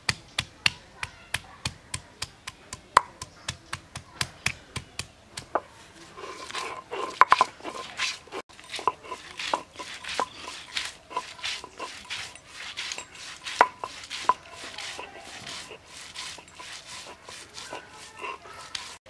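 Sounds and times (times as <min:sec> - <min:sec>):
stone roller gritty scraping: 0:05.4 - 0:19.0
stone knocking on stone: 0:06.4 - 0:17.2.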